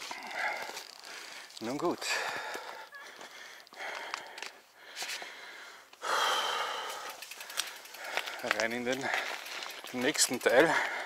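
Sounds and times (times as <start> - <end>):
person breathing hard: 2.1 - 9.8, 10.7 - 11.0.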